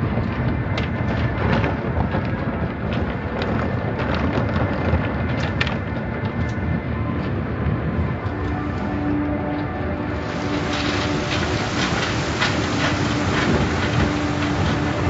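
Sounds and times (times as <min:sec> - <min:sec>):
heavy rumble: 0:00.0 - 0:15.0
water spraying: 0:10.0 - 0:15.0
car wash brushes scrubbing: 0:10.2 - 0:15.0.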